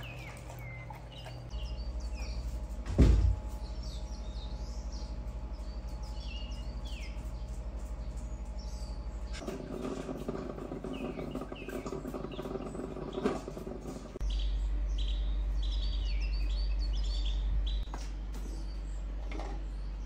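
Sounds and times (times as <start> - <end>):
birds chirping: 0.0 - 20.0
low pulsing hum: 0.0 - 20.0
loud thump: 2.9 - 3.5.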